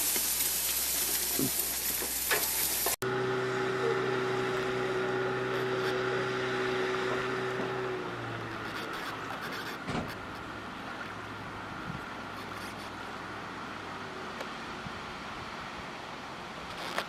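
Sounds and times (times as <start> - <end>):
food sizzling on grill: 0.0 - 3.0
boat motor running: 3.0 - 13.3.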